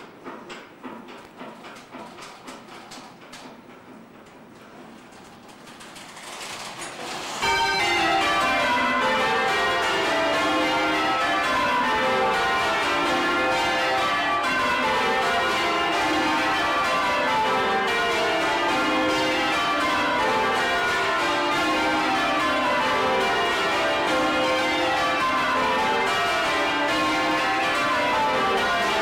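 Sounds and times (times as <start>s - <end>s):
church bells ringing: 7.4s - 29.0s.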